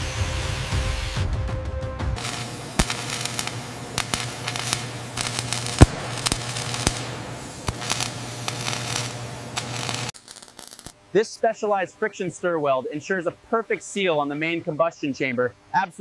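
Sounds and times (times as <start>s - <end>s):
angle grinder: 0.0s - 1.2s, 2.2s - 10.9s
welding arc crackling and popping: 2.2s - 11.0s
steady hum: 2.2s - 16.0s.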